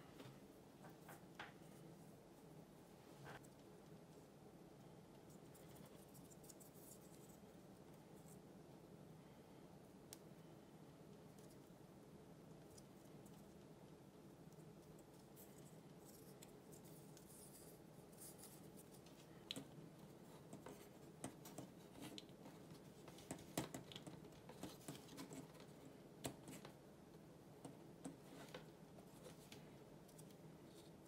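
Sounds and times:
faint steady hum: 0.0s - 31.0s.

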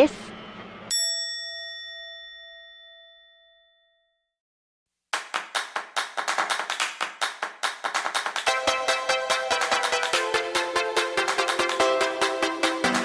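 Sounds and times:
bell-like ding: 0.9s - 4.3s
fast sharp percussive hits: 5.2s - 11.9s.

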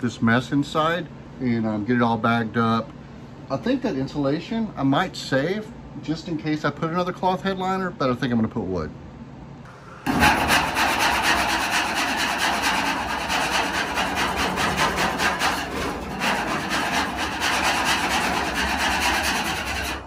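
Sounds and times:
scraping glue off steel: 10.1s - 20.0s.

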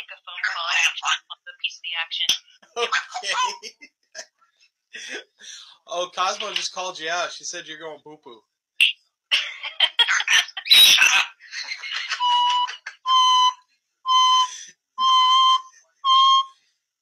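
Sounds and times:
parrot imitating alarm beeps: 12.2s - 16.6s.

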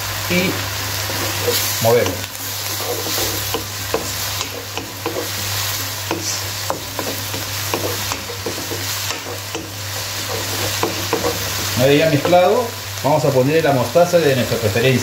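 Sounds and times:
onion and garlic sizzling in oil: 0.0s - 15.0s
wooden spoon scraping a pan: 0.6s - 12.6s.

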